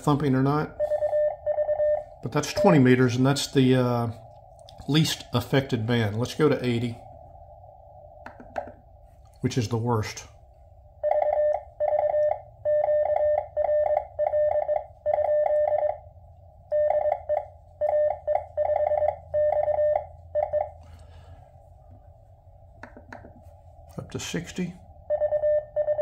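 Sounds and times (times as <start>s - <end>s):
morse code sidetone beeps: 0.8s - 3.1s, 11.0s - 16.0s, 16.7s - 20.8s, 25.1s - 26.0s.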